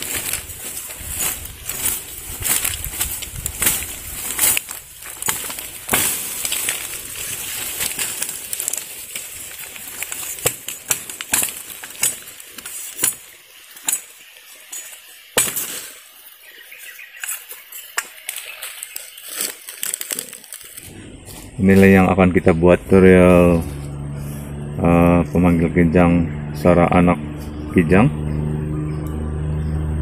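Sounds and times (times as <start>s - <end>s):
bamboo leaves rustling: 0.0s - 26.0s
knife chopping bamboo: 7.9s - 14.1s, 15.4s - 15.9s.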